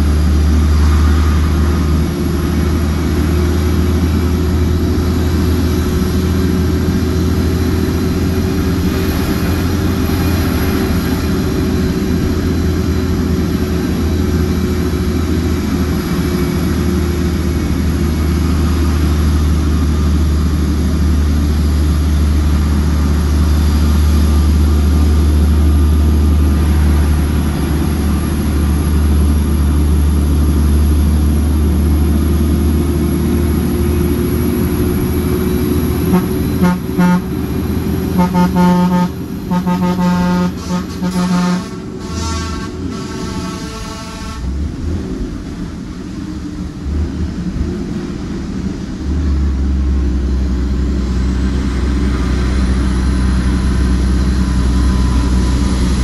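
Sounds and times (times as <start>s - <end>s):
road noise: 0.0s - 56.0s
truck diesel engine running: 0.0s - 56.0s.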